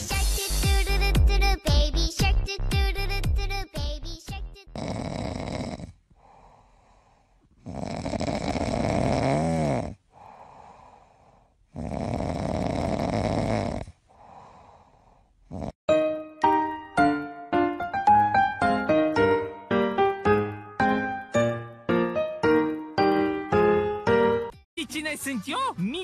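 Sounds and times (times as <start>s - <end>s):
puppy snoring: 4.6s - 6.4s, 7.5s - 10.2s, 11.7s - 15.8s
soft breath: 5.9s - 7.8s, 10.0s - 11.8s, 13.8s - 15.5s.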